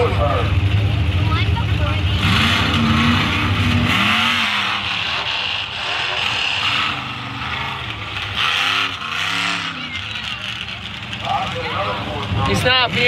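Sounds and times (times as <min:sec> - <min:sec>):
truck engine revving: 0:00.0 - 0:13.0.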